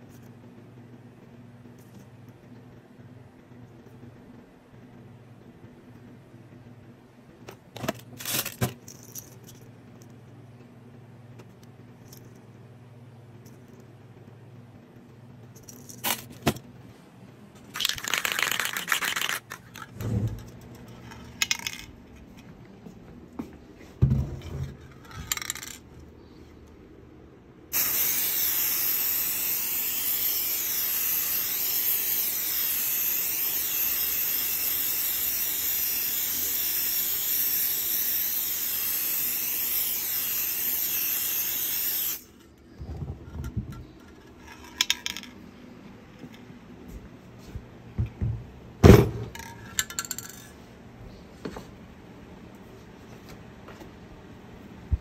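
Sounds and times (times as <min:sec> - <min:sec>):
aerosol spray hissing: 0:27.7 - 0:42.3.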